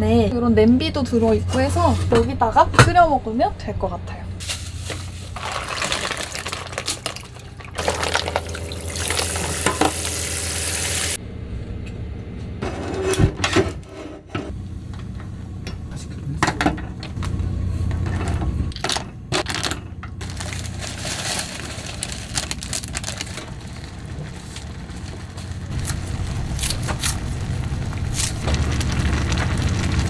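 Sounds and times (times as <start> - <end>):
broth boiling in a pan: 4.4 - 11.2, 20.2 - 30.0.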